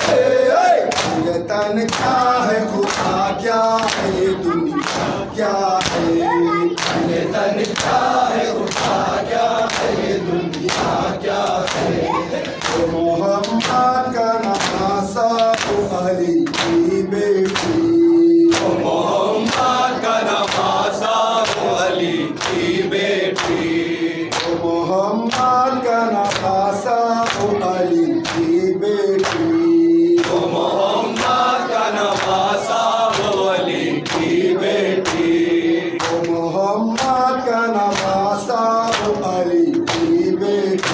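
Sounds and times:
man singing a lament: 0.0s - 33.7s, 34.5s - 40.9s
men chanting: 0.0s - 40.9s
hands slapping chests: 0.8s - 2.2s, 2.8s - 17.8s, 18.5s - 19.8s, 21.4s - 21.8s, 22.4s - 22.7s, 23.3s - 24.6s, 25.3s - 25.6s, 36.0s - 37.2s, 38.9s - 40.9s.

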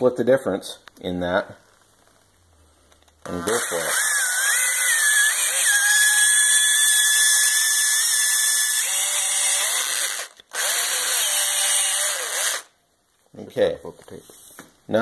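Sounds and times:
electric drill motor whine: 3.3s - 12.7s
drill bit cutting hiss: 3.4s - 12.7s.

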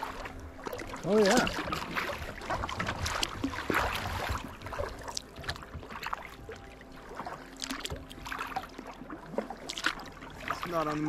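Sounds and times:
paddle splashing in water: 0.0s - 11.0s.

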